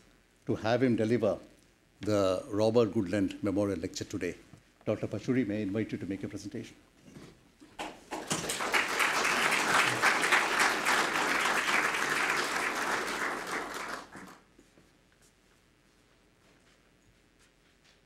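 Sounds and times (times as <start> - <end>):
audience applauding: 7.8 - 14.4.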